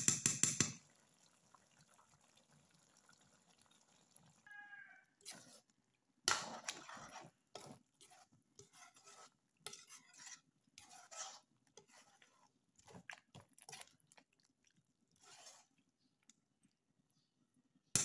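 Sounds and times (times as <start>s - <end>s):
spoon scraping and squelching in pot: 5.0s - 17.3s.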